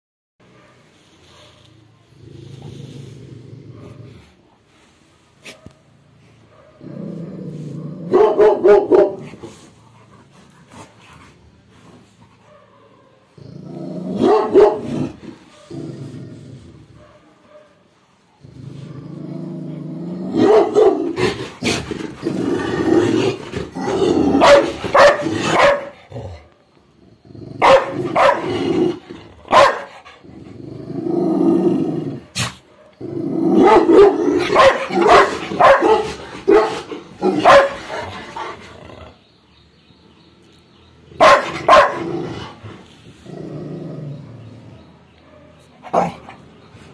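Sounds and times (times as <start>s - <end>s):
dog barking: 0.4s - 1.9s, 5.4s - 6.8s, 8.1s - 9.2s, 12.4s - 13.4s, 14.2s - 15.8s, 17.0s - 17.9s, 20.4s - 21.2s, 24.3s - 26.0s, 27.6s - 28.5s, 29.5s - 30.0s, 33.6s - 38.0s, 41.2s - 42.1s, 45.2s - 46.2s
dog growling: 2.1s - 4.4s, 6.8s - 8.2s, 13.3s - 17.0s, 18.4s - 29.3s, 30.2s - 32.3s, 41.9s - 45.0s.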